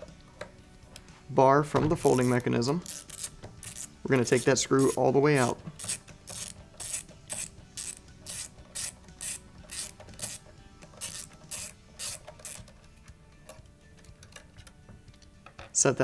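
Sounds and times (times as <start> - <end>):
ratcheting screwdriver clicks: 2.8 - 4.4, 5.8 - 12.9.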